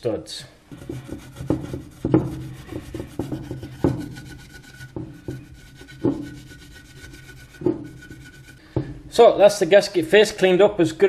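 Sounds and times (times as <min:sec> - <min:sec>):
scouring pad scrubbing metal: 0:00.7 - 0:08.9
sharp knocks: 0:00.7 - 0:09.2.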